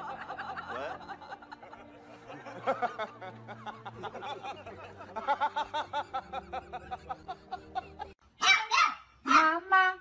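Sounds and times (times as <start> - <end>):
rapid snickering laughter: 0.0 - 8.2.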